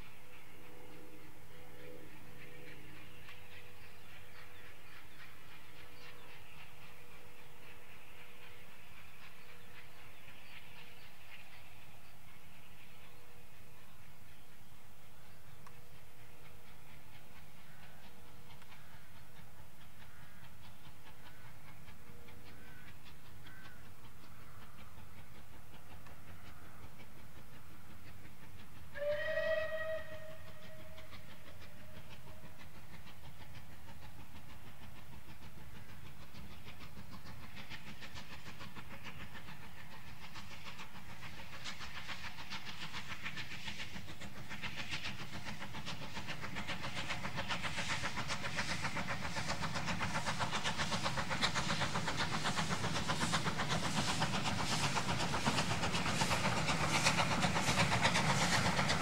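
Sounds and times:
steam locomotive exhaust beats: 0:00.0 - 0:59.0
steam locomotive whistle: 0:28.9 - 0:31.4.

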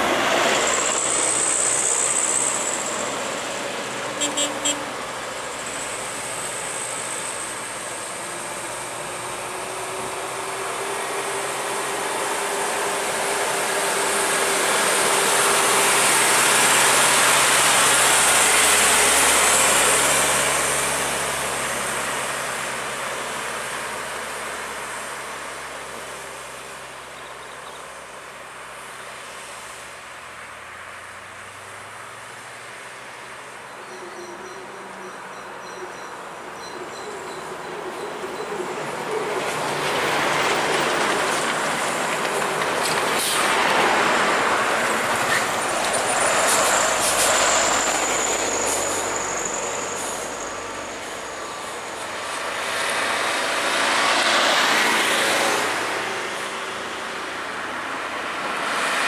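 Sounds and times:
hum of traffic: 0:00.0 - 0:59.0
light truck passing by: 0:00.0 - 0:59.0
tyre noise on road: 0:36.1 - 0:59.0.

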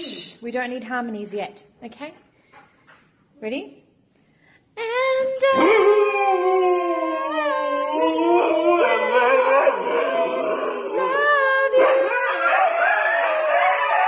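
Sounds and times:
dogs howling: 0:05.6 - 0:14.0.

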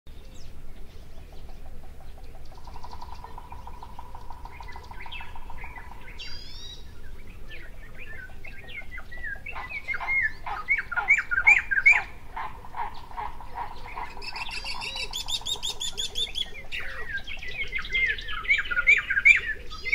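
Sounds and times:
songbirds chirping: 0:00.1 - 0:19.9
fast bird trill: 0:08.0 - 0:19.9.

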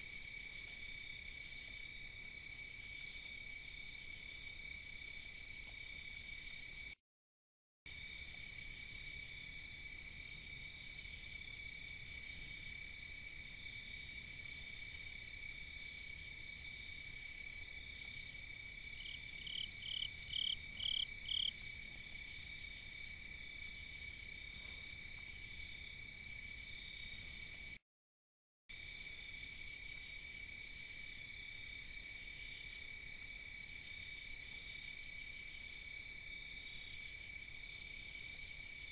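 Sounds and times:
insect chirps: 0:00.0 - 0:07.0, 0:07.9 - 0:27.8, 0:28.7 - 0:38.9
insects trilling: 0:18.9 - 0:27.8.

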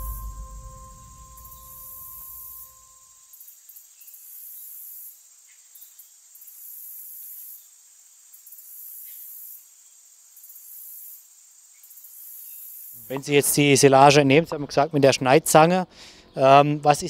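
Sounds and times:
musical tone: 0:00.0 - 0:03.0
faint rural ambience hiss: 0:00.0 - 0:17.0
insects trilling: 0:03.3 - 0:13.7.

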